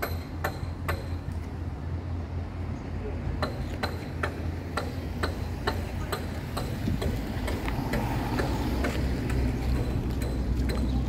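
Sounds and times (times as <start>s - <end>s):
footsteps on pavement: 5.7s - 11.0s.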